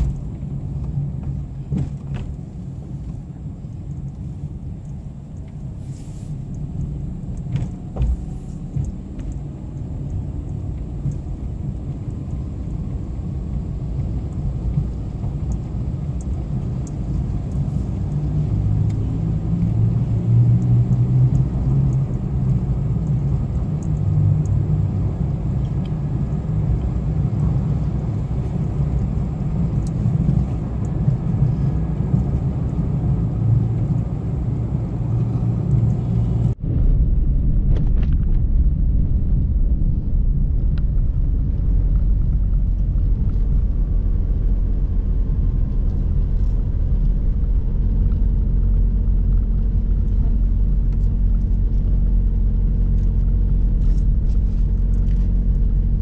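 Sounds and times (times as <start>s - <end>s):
car engine rumble: 0.0s - 56.0s.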